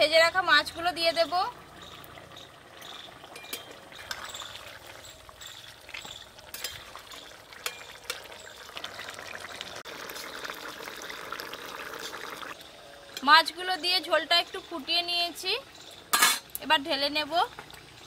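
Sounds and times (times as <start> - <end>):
curry boiling in pan: 0.0 - 18.0
metal spatula clinking on pan: 3.4 - 3.7, 6.5 - 6.9, 16.1 - 16.5.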